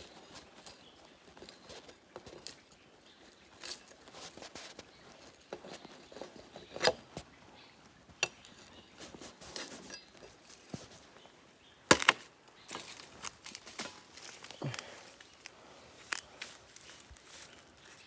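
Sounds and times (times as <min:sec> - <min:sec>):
dry wood snapping and crackling: 0:00.0 - 0:07.4, 0:11.8 - 0:18.0.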